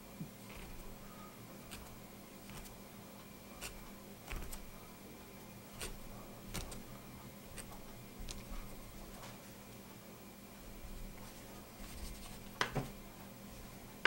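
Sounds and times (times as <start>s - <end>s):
dough scraper cutting dough: 0.5s - 2.8s, 3.5s - 4.8s, 5.8s - 9.0s
scraper tapping board: 3.6s - 4.7s.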